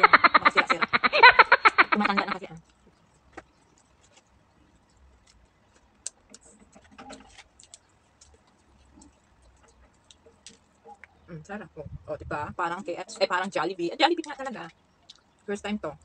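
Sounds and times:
chewing and tearing food: 2.6 - 11.2, 14.2 - 15.5.

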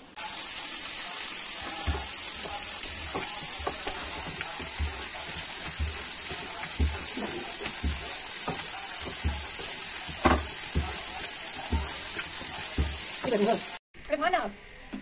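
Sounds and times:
frying sizzle: 0.0 - 13.8.

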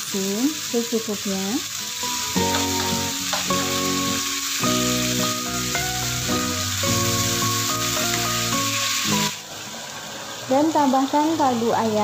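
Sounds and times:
mushrooms sizzling in a frying pan: 0.0 - 12.0
background music of held notes: 1.8 - 9.4.

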